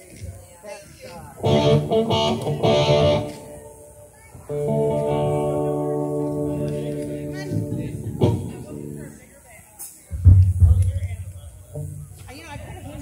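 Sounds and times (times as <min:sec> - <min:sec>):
electric guitar chords: 0:01.4 - 0:09.1.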